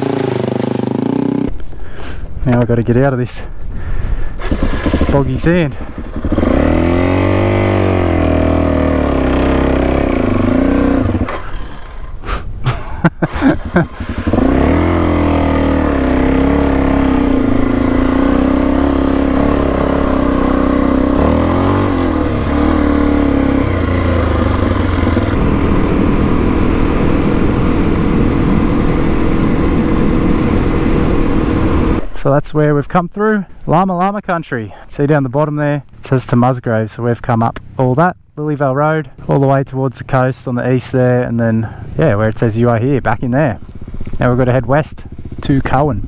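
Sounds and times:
dirt bike engine revving: 0.0s - 1.6s, 4.4s - 12.3s, 13.2s - 32.1s, 43.6s - 46.0s.

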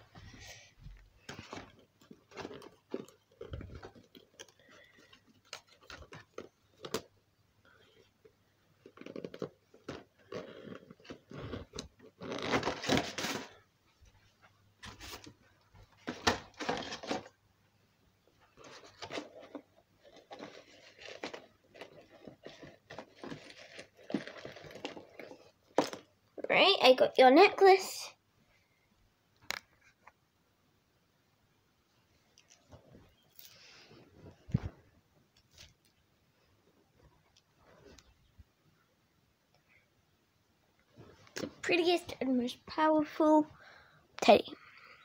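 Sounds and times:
rustling and rummaging: 0.1s - 17.4s, 18.3s - 26.6s, 32.2s - 38.4s, 40.8s - 42.6s.

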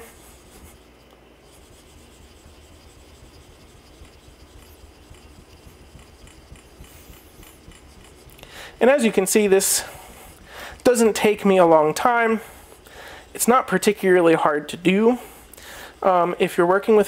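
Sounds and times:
steel blade scraping on whetstone: 0.0s - 11.8s.

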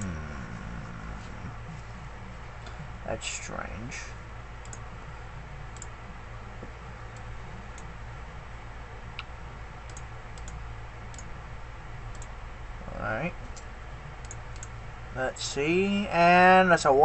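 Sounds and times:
steady low hum: 0.0s - 17.0s
computer mouse clicks: 4.6s - 4.9s, 9.9s - 11.3s, 12.1s - 12.3s, 13.5s - 14.7s.

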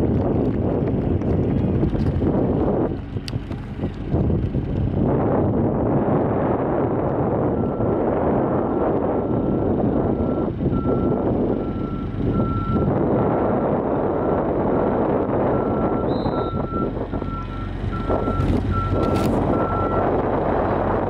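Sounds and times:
wind noise on microphone: 0.0s - 21.0s
vehicle reversing alarm beeping: 7.5s - 8.1s, 9.1s - 13.0s, 15.4s - 20.2s.

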